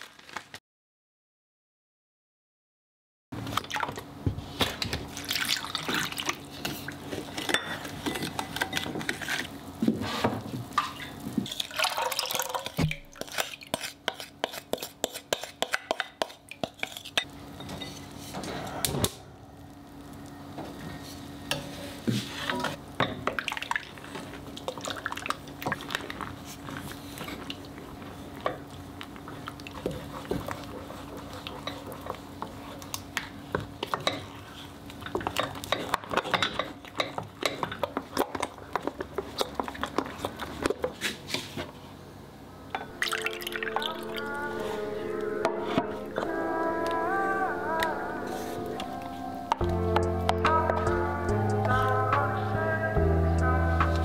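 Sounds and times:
splashing and clinking: 0:11.5 - 0:13.6
spatula scraping glass bowl: 0:13.2 - 0:18.0
steady low hum: 0:42.1 - 0:54.0.

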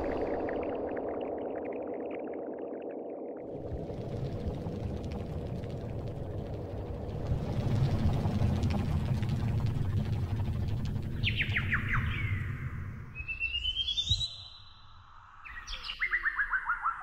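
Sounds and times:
steady low rumble: 0:00.0 - 0:13.2.

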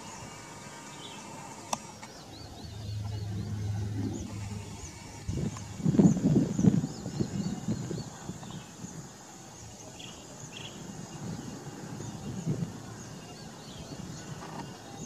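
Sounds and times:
faint high chirps: 0:02.0 - 0:06.5
low rumble: 0:02.1 - 0:07.2.

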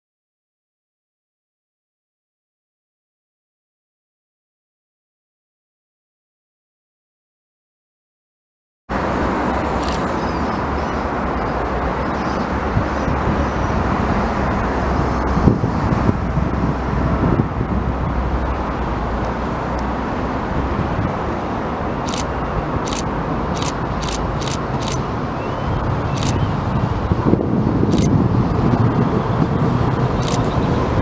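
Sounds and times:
road traffic noise: 0:08.9 - 0:31.0.

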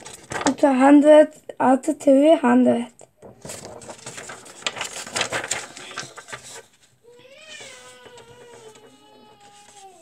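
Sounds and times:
paper rustling and crackling: 0:00.0 - 0:00.7, 0:03.1 - 0:10.0.

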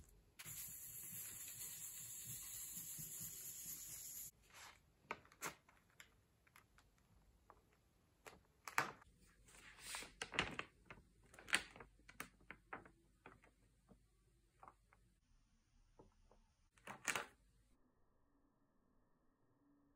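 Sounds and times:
paper crackling and rustling: 0:09.7 - 0:13.4.

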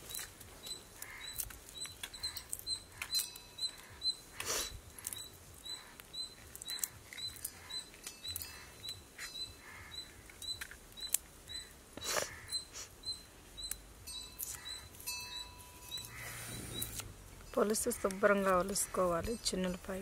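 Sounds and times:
garlic skin crackling: 0:00.0 - 0:12.8
faint high chirp: 0:00.0 - 0:18.1.

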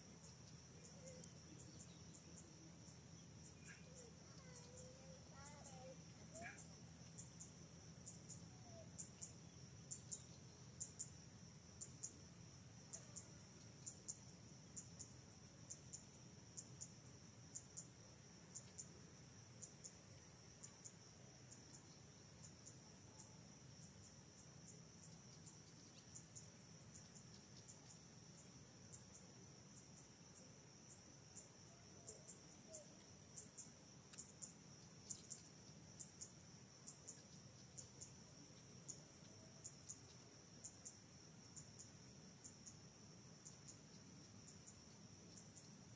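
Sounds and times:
insect chirps: 0:00.0 - 0:45.9
insects trilling: 0:00.2 - 0:17.9.

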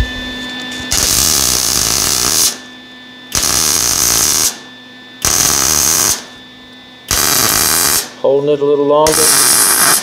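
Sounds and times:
welder arc bursts: 0:00.9 - 0:02.6, 0:03.3 - 0:04.6, 0:05.2 - 0:06.3, 0:07.1 - 0:08.2, 0:09.0 - 0:10.0.

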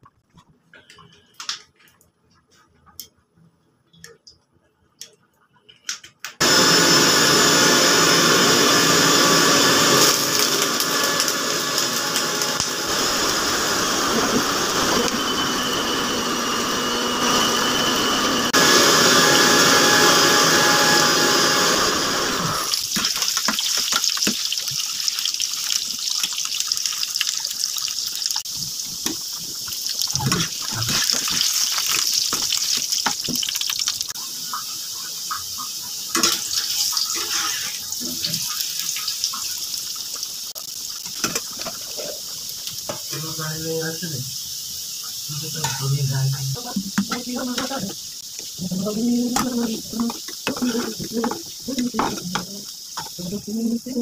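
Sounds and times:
potatoes sizzling in hot oil: 0:22.5 - 0:54.0
metal spatula scraping pan: 0:49.4 - 0:52.4.

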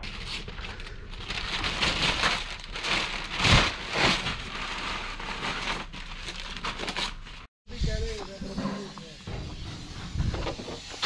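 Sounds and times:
paper crackling and rustling: 0:00.0 - 0:07.5
paper tape ripping and crumpling: 0:01.4 - 0:07.5.

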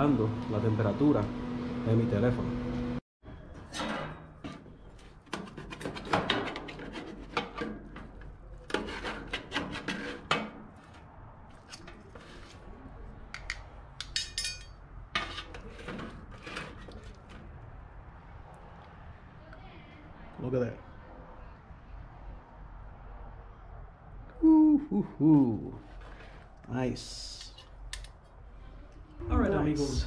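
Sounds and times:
metal tongs scraping steel pan: 0:14.0 - 0:17.2.

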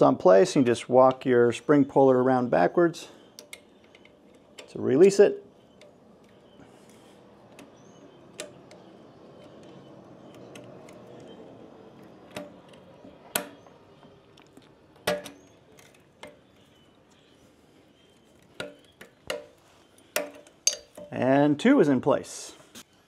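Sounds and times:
metallic spring clicks and clinks: 0:18.6 - 0:21.2.

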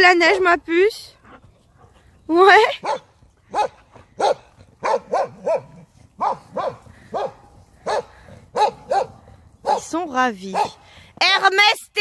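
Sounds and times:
dog barking: 0:02.8 - 0:09.9, 0:10.5 - 0:10.8.

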